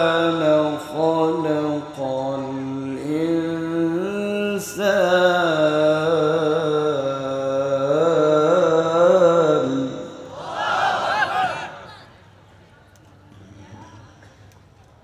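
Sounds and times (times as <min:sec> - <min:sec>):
man reciting melodically: 0:00.0 - 0:10.3.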